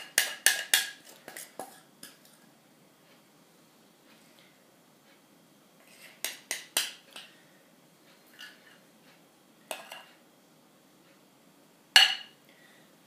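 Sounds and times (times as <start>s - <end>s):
spoon scraping a mixing bowl: 0.0s - 2.4s, 5.8s - 7.3s.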